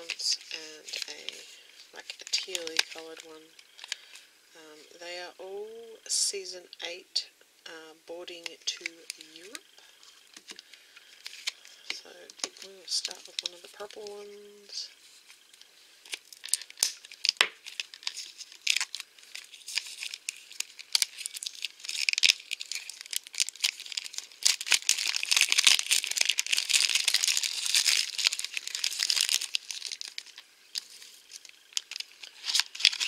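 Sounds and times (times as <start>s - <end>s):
plastic film crinkling: 0.0s - 4.2s, 8.6s - 33.0s
craft knife slitting plastic film: 16.1s - 30.4s, 31.8s - 33.0s.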